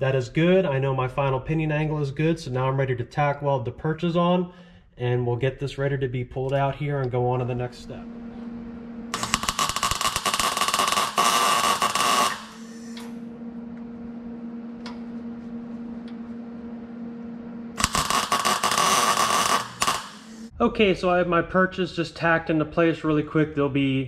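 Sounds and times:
steady low hum: 0.0 - 24.0
welding arc crackling: 9.1 - 13.0, 17.7 - 20.5.

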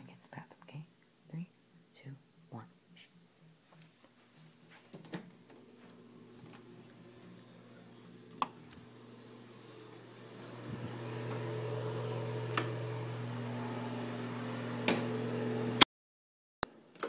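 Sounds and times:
low mechanical hum: 0.0 - 15.8.

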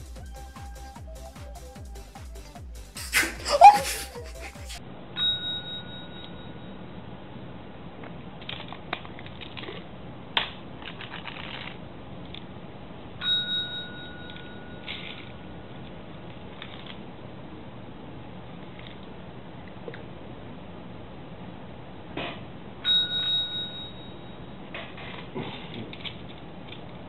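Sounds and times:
tap bell ding: 5.2 - 6.6, 13.2 - 14.9, 22.8 - 24.4.

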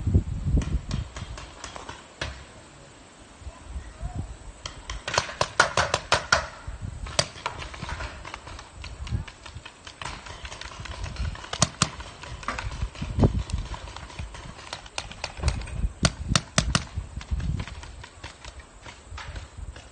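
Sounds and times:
paintball markers firing: 4.6 - 19.9.

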